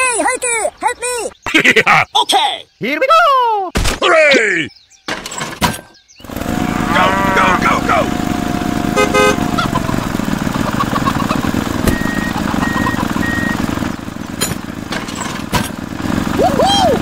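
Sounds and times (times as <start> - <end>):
tractor engine running: 6.2 - 17.0
horn toot: 6.3 - 10.0.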